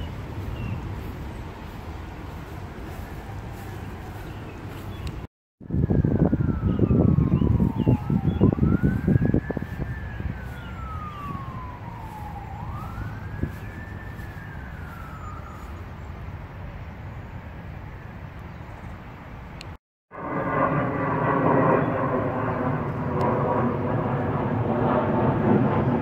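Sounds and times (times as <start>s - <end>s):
wind buffeting microphone: 0.0s - 16.5s
emergency siren wailing: 0.0s - 16.7s, 20.1s - 26.0s.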